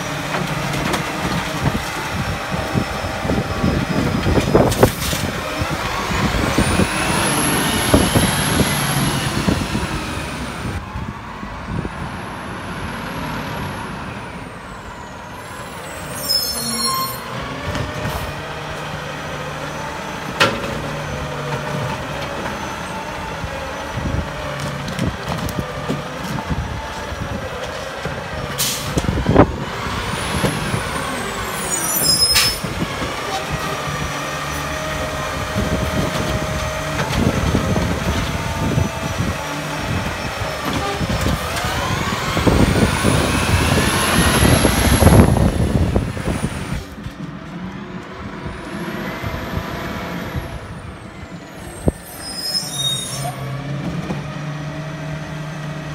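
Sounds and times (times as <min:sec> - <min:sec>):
truck pulling away: 0:00.0 - 0:11.6, 0:17.3 - 0:52.2
garbage truck running: 0:00.0 - 0:16.2, 0:17.2 - 0:52.3, 0:53.2 - 0:55.9
air brakes hissing: 0:28.6 - 0:29.0.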